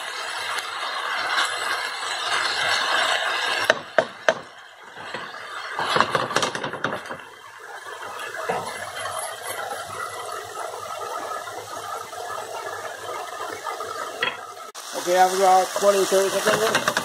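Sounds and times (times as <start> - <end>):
chicken and corn sizzling in a wok: 0.0 - 17.0
wooden spatula stirring and scraping: 15.4 - 17.0.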